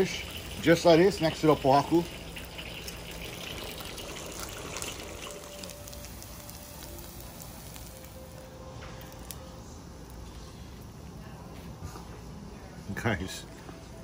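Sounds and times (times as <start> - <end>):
hot oil sizzling in a wok: 0.0 - 8.3.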